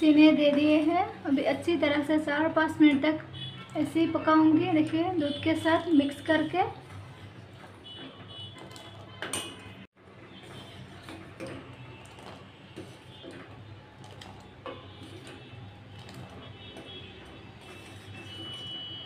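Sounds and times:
metal ladle scraping saucepan: 4.8 - 19.0.

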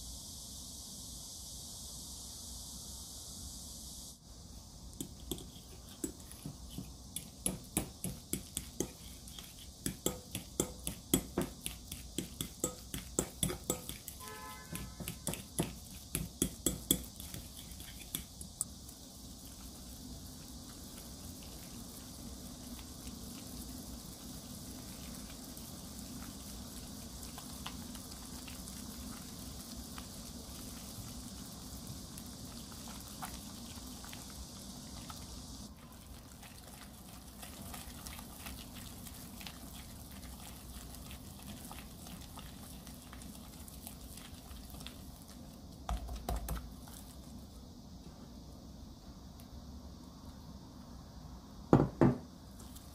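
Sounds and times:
whisk scraping glass bowl: 5.0 - 18.4.

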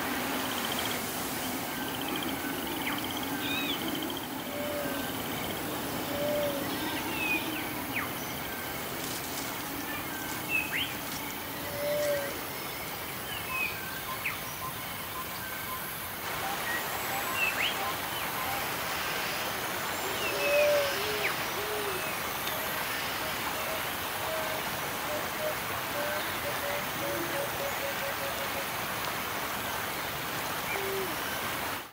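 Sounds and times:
background hiss: 0.0 - 31.9
low hooting calls: 0.6 - 12.5, 20.0 - 28.8, 30.7 - 31.2.

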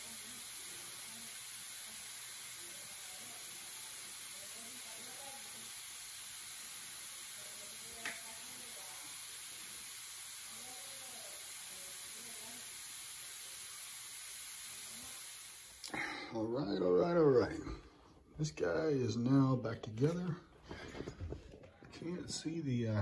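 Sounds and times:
hissing steam sizzle: 0.0 - 16.2.

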